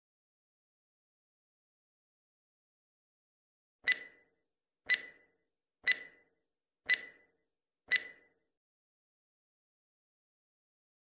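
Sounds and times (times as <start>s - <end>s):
clock ticks with ringing tone: 3.8s - 4.3s, 4.9s - 6.3s, 6.9s - 8.4s.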